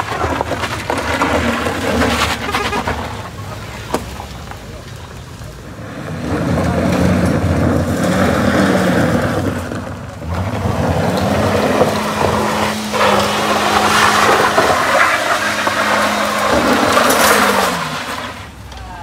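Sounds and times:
tyres scrabbling on gravel: 0.0s - 19.0s
car engine revving hard: 5.7s - 18.6s.

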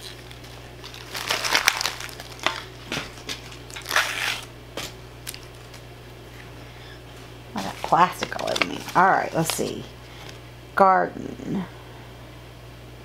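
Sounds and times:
plastic wrapping crinkling and tearing: 0.0s - 5.8s, 7.6s - 10.4s.

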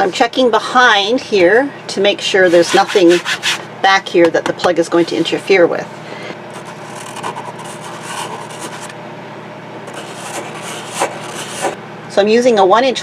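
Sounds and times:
hands rubbing on wall panel: 2.4s - 3.6s, 9.9s - 11.8s.

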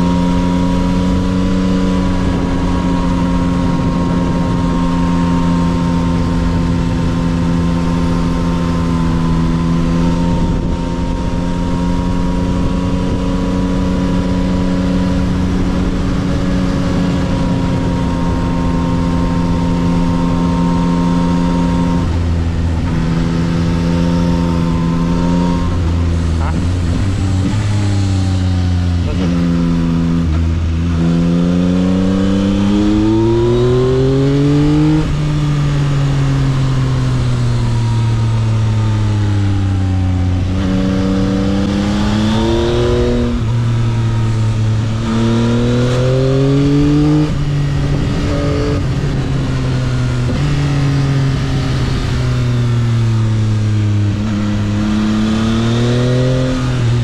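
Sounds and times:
motorcycle engine revving: 0.0s - 57.0s
wind rush: 46.3s - 54.7s.

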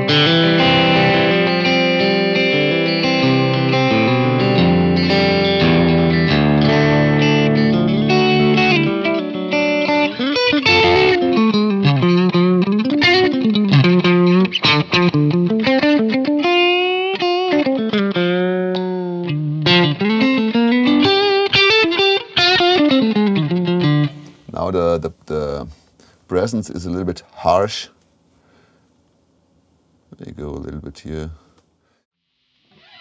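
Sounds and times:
electric guitar with light grit: 0.0s - 24.5s.

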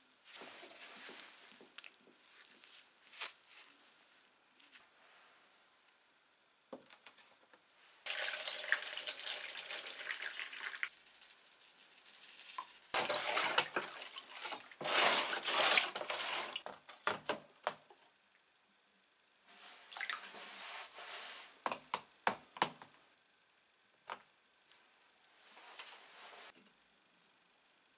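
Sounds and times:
water pouring into plastic tub: 8.1s - 10.9s, 13.0s - 16.6s.

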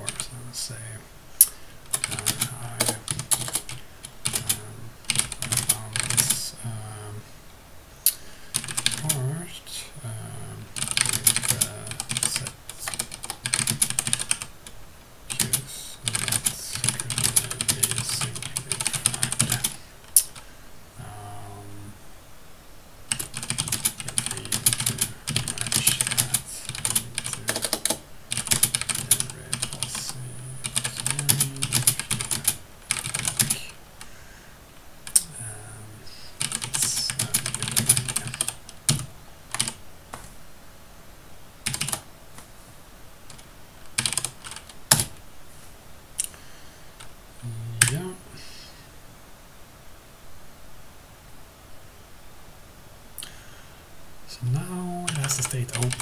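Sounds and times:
typing on computer keyboard: 1.9s - 6.4s, 8.5s - 9.2s, 10.8s - 14.5s, 15.3s - 20.4s, 23.1s - 33.6s, 36.4s - 40.3s, 41.7s - 42.5s, 43.3s - 45.1s, 55.1s - 56.0s.

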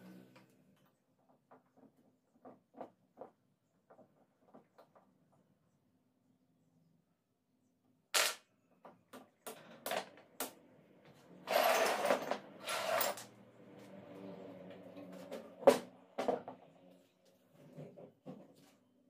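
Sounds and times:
metal tools clinking and scraping: 11.5s - 13.3s.

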